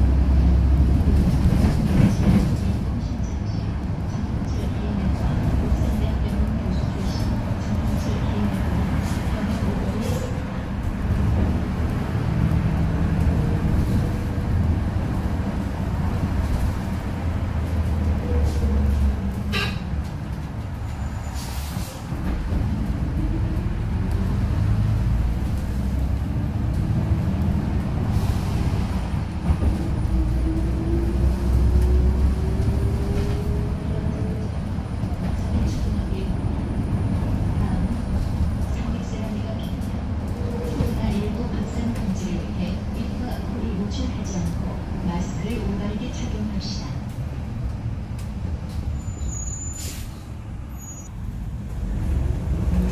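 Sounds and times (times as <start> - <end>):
bus engine and road rumble: 0.0 - 52.9
air brake hiss: 49.6 - 50.3.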